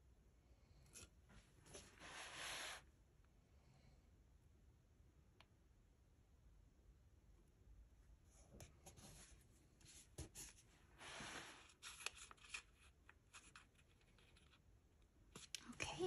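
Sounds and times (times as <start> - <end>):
paper rustling: 10.0 - 14.6.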